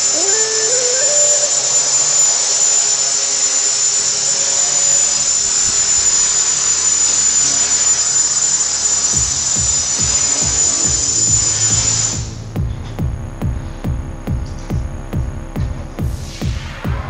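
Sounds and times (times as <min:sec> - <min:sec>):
quadcopter motors whining: 0:00.0 - 0:12.4.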